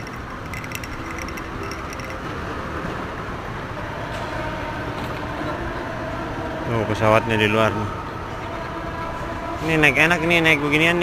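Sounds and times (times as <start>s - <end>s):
moving walkway rumble: 0.0s - 6.7s.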